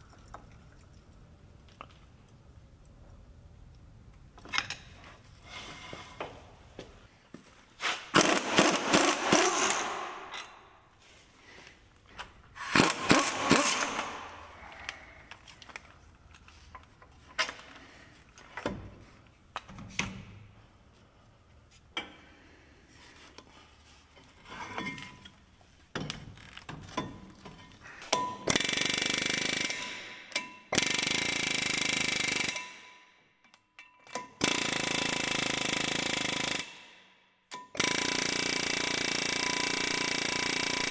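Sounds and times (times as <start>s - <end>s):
pneumatic impact wrench hammering: 7.8s - 10.6s, 12.6s - 14.4s, 28.1s - 33.0s, 34.1s - 36.9s, 37.6s - 40.9s.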